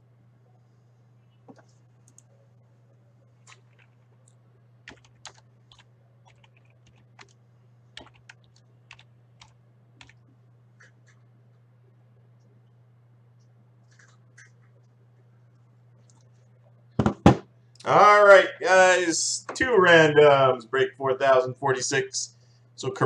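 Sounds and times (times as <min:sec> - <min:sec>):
low electrical hum: 0:00.0 - 0:23.0
keyboard and mouse clicks: 0:03.4 - 0:07.4, 0:08.0 - 0:10.2.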